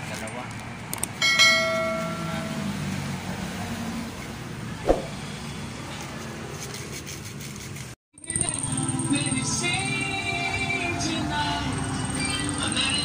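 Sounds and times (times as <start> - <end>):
bell-like chime: 1.2 - 2.7
sharp knock: 4.9 - 5.2.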